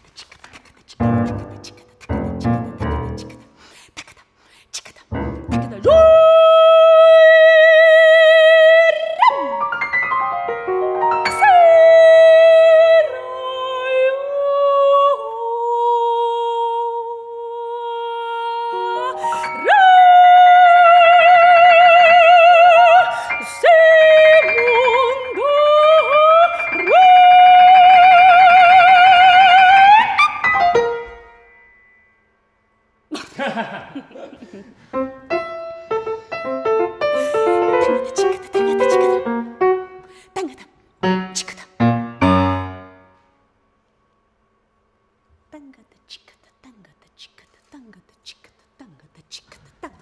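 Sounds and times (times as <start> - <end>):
piano notes: 1.0 - 3.5, 5.1 - 6.8, 9.3 - 12.6, 29.6 - 32.1, 34.6 - 40.2, 41.0 - 43.3
woman singing with vibrato: 5.0 - 9.6, 11.2 - 30.6, 37.1 - 41.9, 45.5 - 50.0
piano notes ringing: 30.3 - 32.9.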